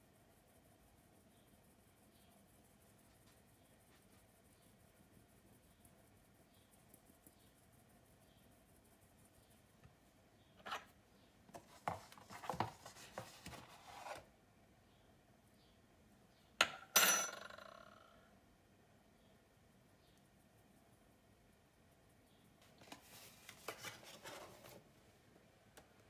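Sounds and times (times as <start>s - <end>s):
sieve rustling and scraping: 11.6s - 14.3s, 22.8s - 24.8s
ringing metal clink: 16.6s - 17.7s.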